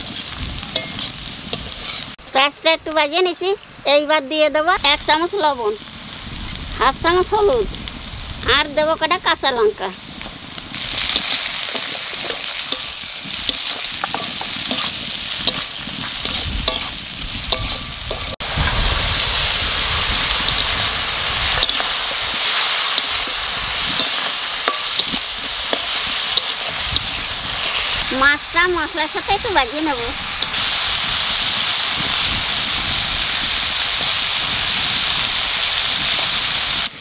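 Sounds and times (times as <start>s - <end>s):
food sizzling in hot oil: 0.0s - 3.7s, 4.6s - 37.0s
spatula scraping pan: 0.8s - 2.2s, 10.9s - 18.4s, 21.4s - 28.0s.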